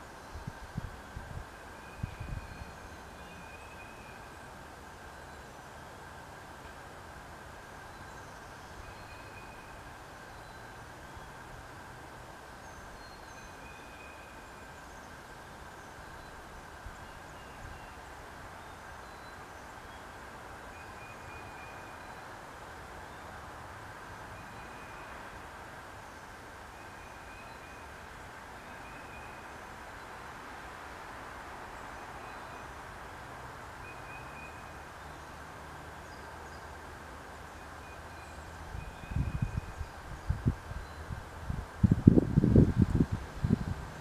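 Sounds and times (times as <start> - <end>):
outdoor background hiss: 0.0 - 44.0
faint high chirp: 7.9 - 10.7.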